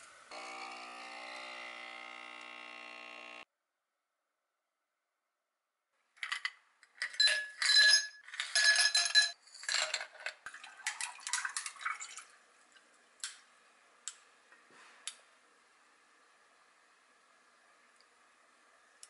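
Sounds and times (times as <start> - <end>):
ice clinking against glass: 7.0 - 11.7
water poured over ice: 10.4 - 12.4.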